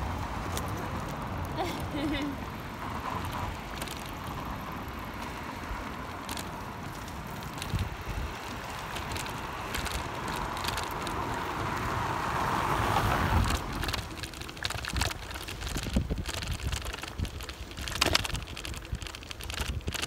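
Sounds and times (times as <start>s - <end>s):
bicycle tyres on wet pavement: 0.0s - 20.0s
bike rattling over bumps: 0.0s - 20.0s
wind on microphone: 7.4s - 20.0s.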